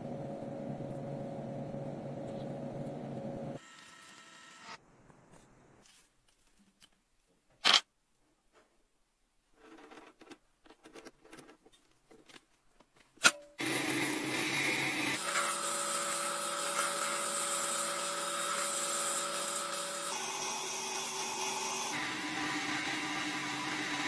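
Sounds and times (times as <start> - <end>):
faint scratching and handling: 5.3 - 7.0, 9.5 - 13.1
metal lathe running: 13.6 - 24.0.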